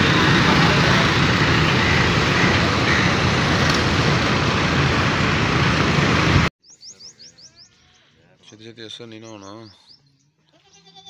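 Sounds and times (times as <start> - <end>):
roadside traffic noise: 0.0 - 8.4.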